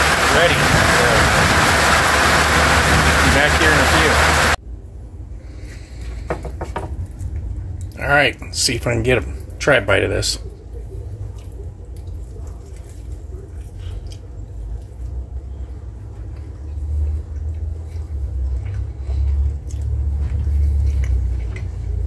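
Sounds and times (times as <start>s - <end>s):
man chewing food: 10.4s - 22.0s.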